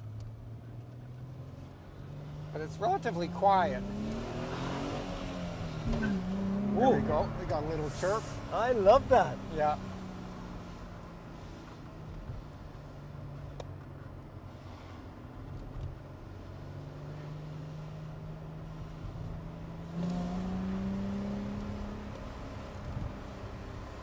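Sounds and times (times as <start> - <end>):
car engine accelerating: 0.0 - 24.0.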